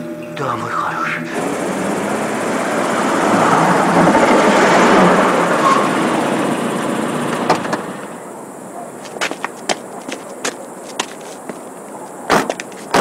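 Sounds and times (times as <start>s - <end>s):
car engine and tyre noise: 1.4s - 13.0s
car door opening clicks: 7.3s - 7.9s.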